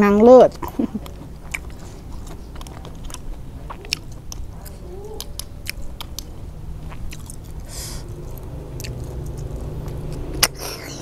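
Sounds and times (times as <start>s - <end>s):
mouth clicks: 1.0s - 10.8s.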